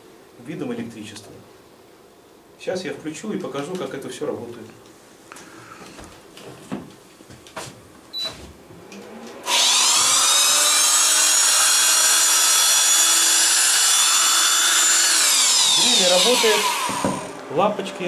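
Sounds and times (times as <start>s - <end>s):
electric drill motor whining: 9.4s - 17.4s.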